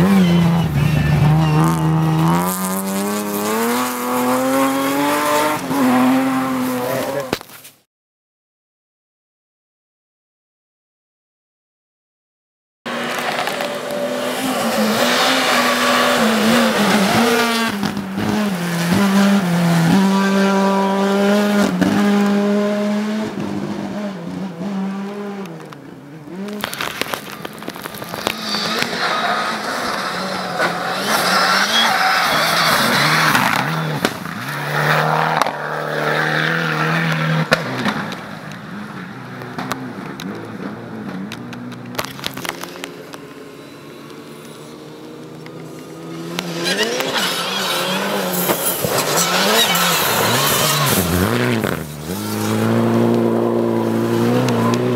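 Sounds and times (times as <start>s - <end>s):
rally cars at full throttle: 0.0s - 7.6s, 12.9s - 54.9s.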